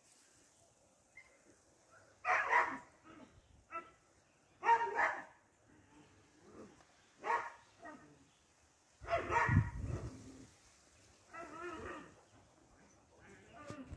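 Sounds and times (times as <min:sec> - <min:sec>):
dog barking: 0:02.2 - 0:02.9, 0:04.6 - 0:05.3, 0:07.2 - 0:08.0, 0:09.0 - 0:09.8.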